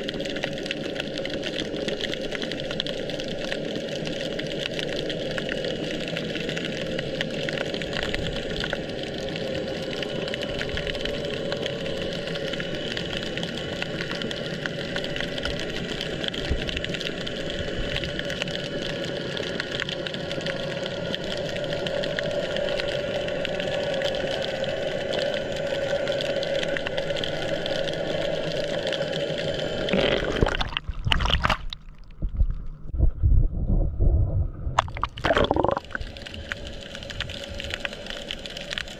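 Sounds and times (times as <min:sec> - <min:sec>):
underwater hum and hiss: 0:00.0 - 0:38.9
water sloshing and gurgling: 0:29.6 - 0:38.9.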